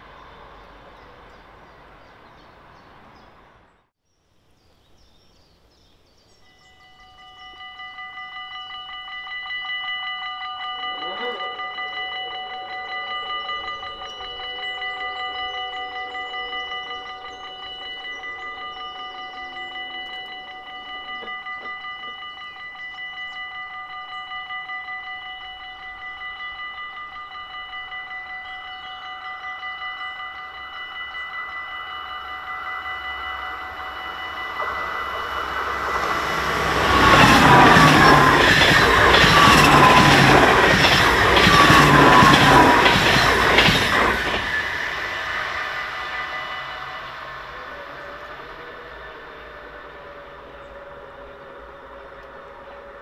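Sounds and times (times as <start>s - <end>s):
train passing: 0.0s - 3.9s, 6.4s - 53.0s
level crossing bell ringing: 6.8s - 44.2s
train wheels clattering over rails: 34.1s - 48.8s.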